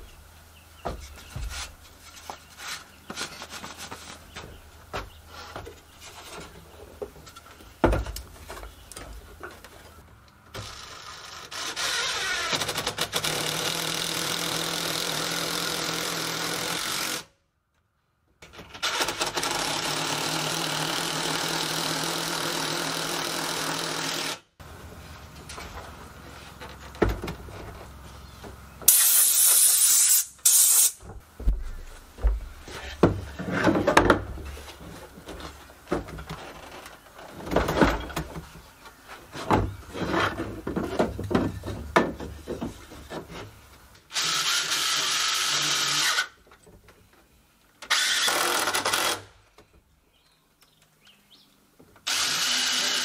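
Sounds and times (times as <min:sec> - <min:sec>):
cordless power driver running: 0:18.9 - 0:24.4, 0:52.1 - 0:53.0.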